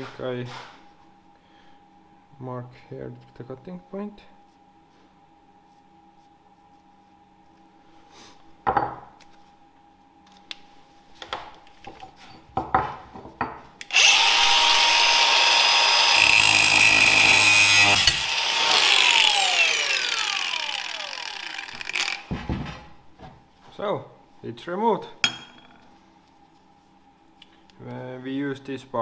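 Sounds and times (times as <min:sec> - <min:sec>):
angle grinder cutting metal: 0:13.9 - 0:22.3.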